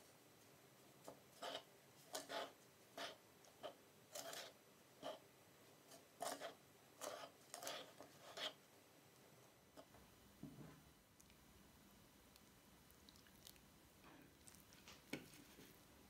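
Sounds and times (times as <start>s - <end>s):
metal spoon scraping in bowl: 1.4s - 5.2s, 5.9s - 8.6s.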